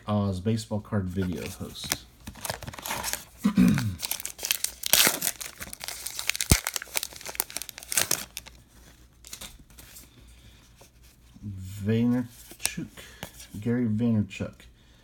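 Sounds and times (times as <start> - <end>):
wrapper crinkling and tearing: 1.2 - 10.0.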